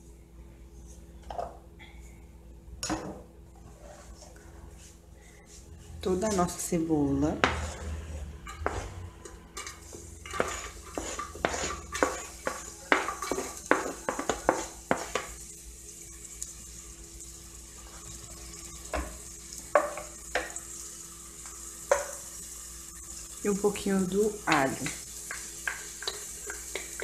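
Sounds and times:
onion sizzling in oil: 0:06.2 - 0:27.0.

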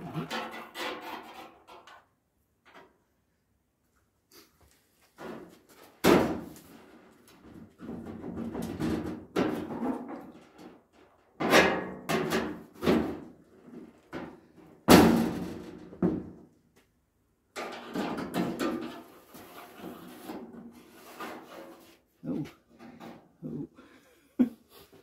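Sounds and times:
scraping and handling noise: 0:17.6 - 0:23.6.

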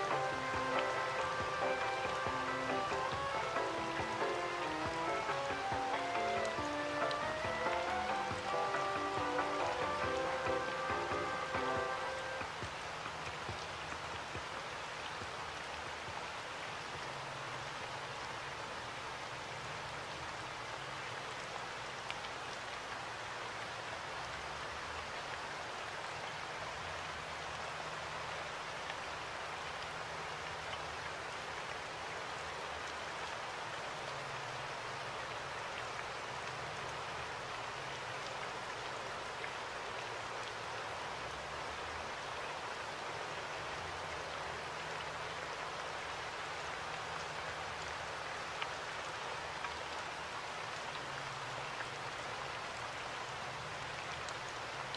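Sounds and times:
steady hiss: 0:00.0 - 0:18.2.

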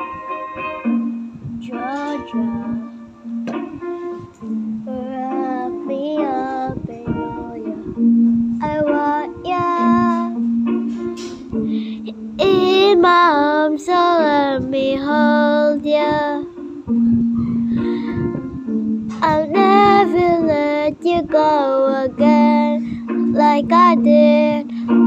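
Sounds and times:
plucked guitar or ukulele: 0:00.0 - 0:25.0
person singing: 0:01.6 - 0:03.0, 0:04.8 - 0:08.0, 0:08.6 - 0:10.4, 0:19.2 - 0:25.0.

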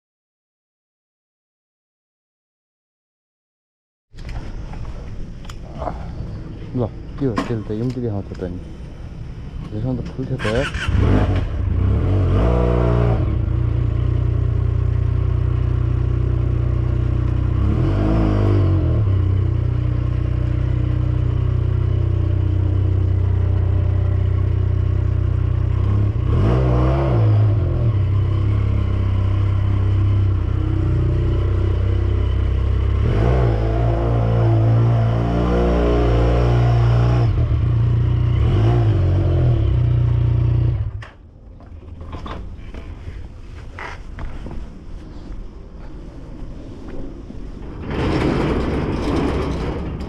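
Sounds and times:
motorcycle engine revving: 0:10.3 - 0:41.2.

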